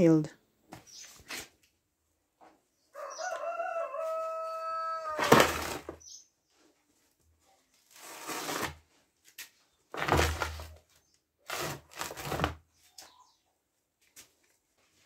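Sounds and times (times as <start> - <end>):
plastic basins scraping: 5.2 - 6.2, 7.8 - 8.9, 9.9 - 12.8.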